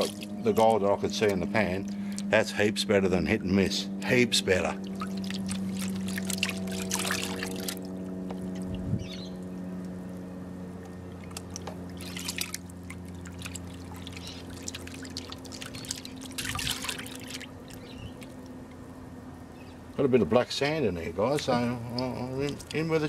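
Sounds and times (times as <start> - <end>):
muddy water sloshing in a pan: 0.0 - 2.3, 4.7 - 9.7, 11.0 - 18.6, 21.4 - 23.0
water splashes: 0.0 - 2.4, 4.5 - 9.7, 11.1 - 18.8, 21.3 - 23.0
steady low hum: 0.0 - 23.0.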